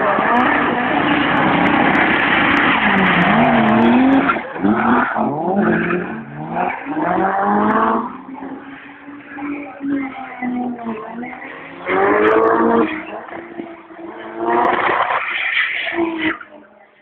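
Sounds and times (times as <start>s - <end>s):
engines revving: 0.0s - 16.7s.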